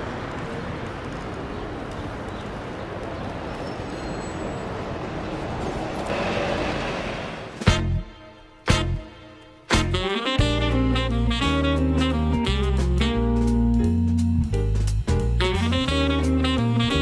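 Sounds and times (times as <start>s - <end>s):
traffic rumble: 0.0s - 8.2s.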